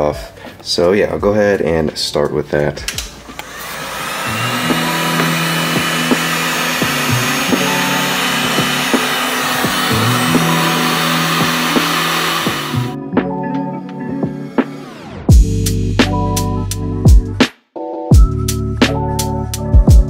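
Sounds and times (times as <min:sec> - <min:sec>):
heat gun blowing hot air: 0:03.3 - 0:13.0
background music with beat: 0:04.4 - 0:20.0.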